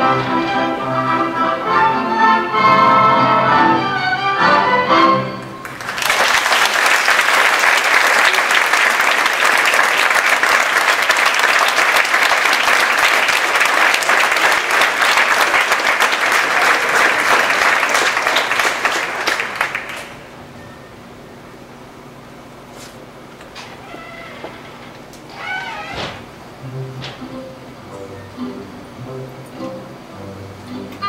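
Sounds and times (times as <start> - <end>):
orchestra playing: 0.0 - 5.8, 26.5 - 31.0
audience applauding: 5.4 - 20.4.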